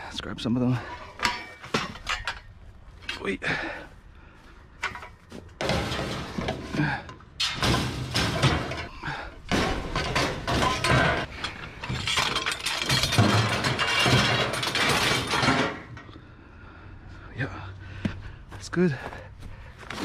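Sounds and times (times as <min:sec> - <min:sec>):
metal poles clattering together: 0:00.8 - 0:03.7, 0:04.7 - 0:16.2.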